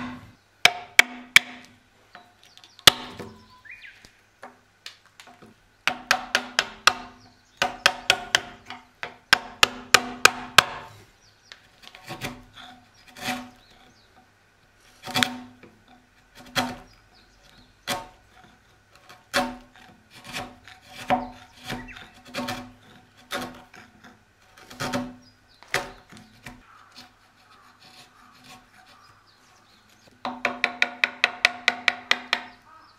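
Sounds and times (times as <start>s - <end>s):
hammer striking chisel: 0.0s - 1.7s, 5.9s - 10.9s, 30.2s - 32.6s.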